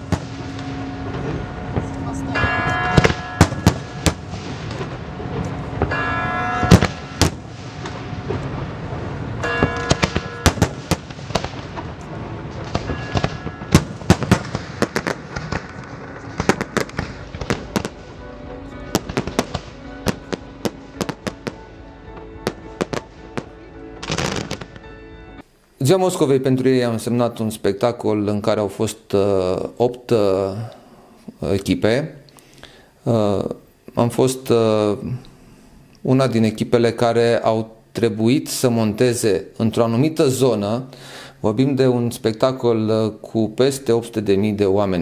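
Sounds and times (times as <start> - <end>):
music playing: 0.0 - 7.2, 14.7 - 25.5
fireworks bursting: 0.0 - 24.9.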